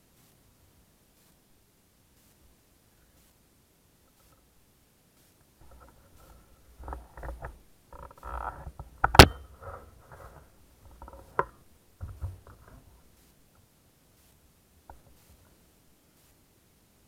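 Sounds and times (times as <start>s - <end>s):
camera case rubbing and knocks: 5.6s - 13.0s.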